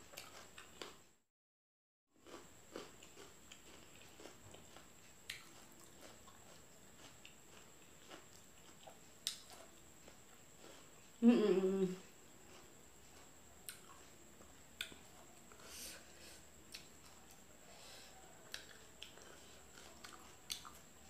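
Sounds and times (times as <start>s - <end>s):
wet chewing clicks: 2.2s - 10.2s, 18.5s - 20.9s.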